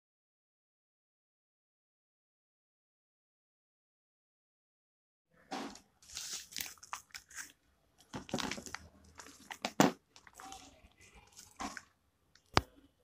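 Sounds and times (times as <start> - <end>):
foil pouch crinkling: 6.0 - 11.9.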